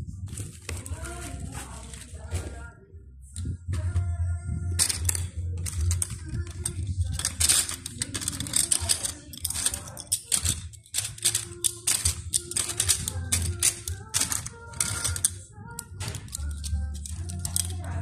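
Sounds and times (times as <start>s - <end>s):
circuit boards clattering in plastic tub: 4.8s - 17.9s.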